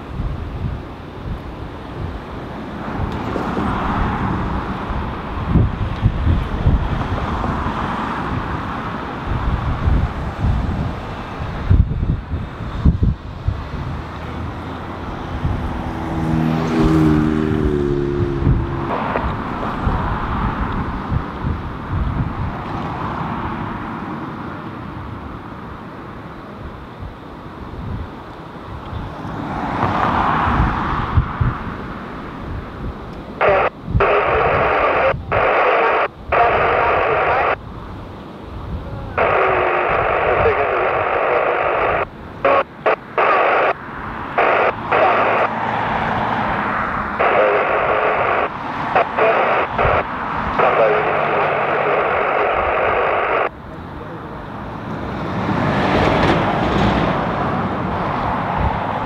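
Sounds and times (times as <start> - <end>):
jet engine noise: 0.0 - 59.0
radio transmissions: 14.1 - 21.3, 33.2 - 37.7, 38.8 - 55.0.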